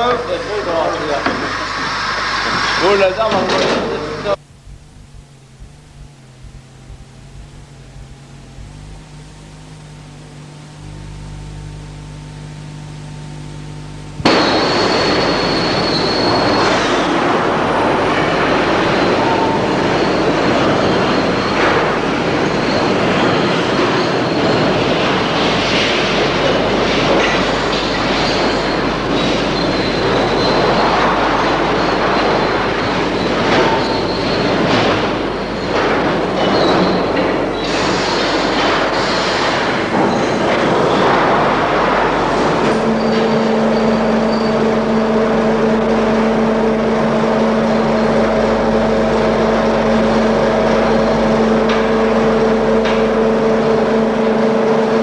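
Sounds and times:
faint steady hum: 0.0s - 55.0s
mine cars rushing on rails: 14.3s - 55.0s
steel wheels squealing: 14.3s - 55.0s.

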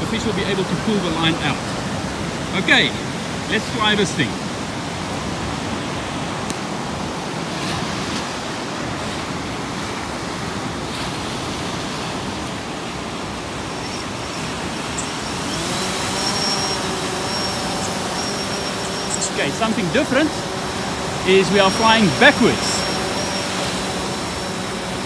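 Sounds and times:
surf washing on beach: 0.0s - 25.0s
drone motors whining: 13.4s - 25.0s.

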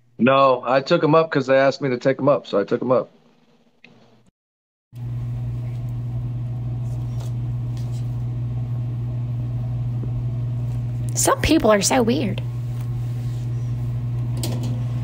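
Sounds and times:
low electrical hum: 5.0s - 15.0s.

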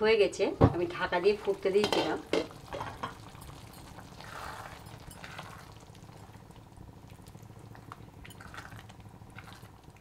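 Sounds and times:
spatula stirring and scraping: 1.8s - 6.4s
sauce bubbling in a pan: 2.2s - 10.0s.

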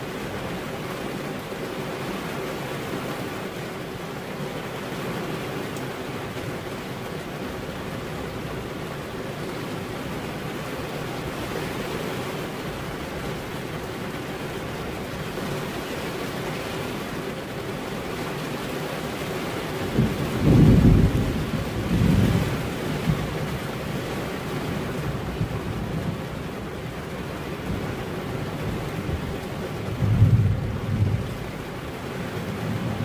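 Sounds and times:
steady rain falling: 0.0s - 33.0s
low rumble of thunder: 19.8s - 23.7s, 27.6s - 33.0s.

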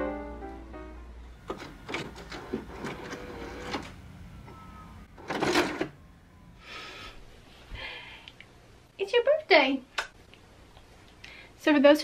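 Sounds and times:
sharp mechanical clicks and clunks: 1.4s - 6.0s.

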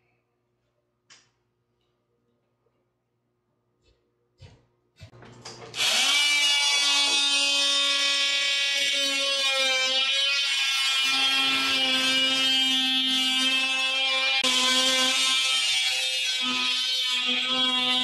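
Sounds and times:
power tool whining: 5.4s - 18.0s.

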